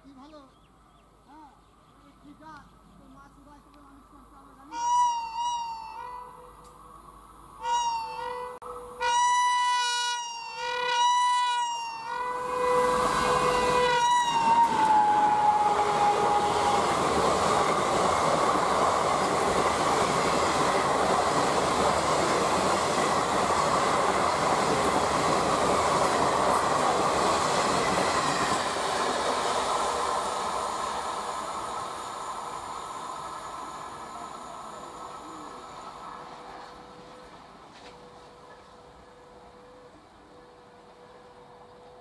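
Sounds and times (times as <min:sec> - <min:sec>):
train wheels running past: 0:05.5 - 0:42.0
locomotive horn: 0:07.6 - 0:17.0.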